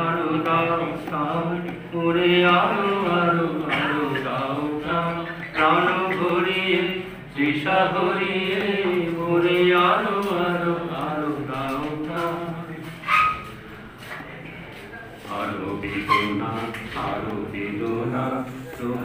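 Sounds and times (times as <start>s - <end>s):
man singing slow song: 0.0s - 13.0s, 15.3s - 19.0s.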